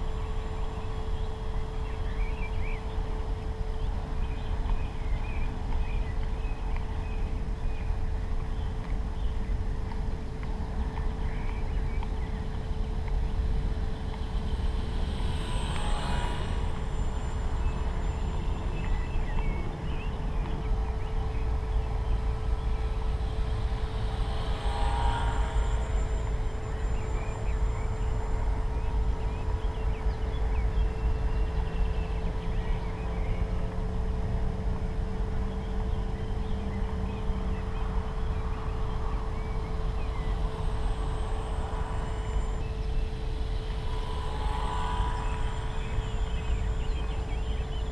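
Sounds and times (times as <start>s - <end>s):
wind rumble on microphone: 0.0s - 47.9s
model airplane motor buzzing: 13.6s - 19.4s, 22.8s - 27.6s.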